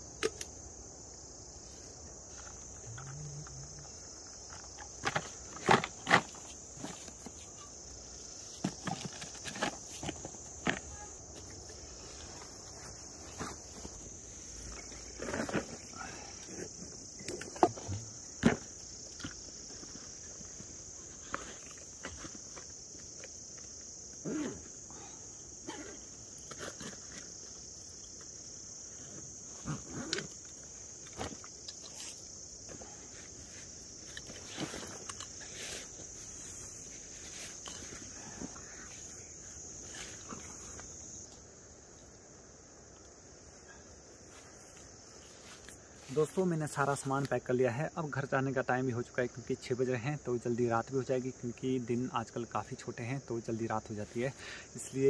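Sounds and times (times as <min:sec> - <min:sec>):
insects chirring: 0:00.0 - 0:55.0
camping gear rustling and knocking: 0:00.2 - 0:41.6.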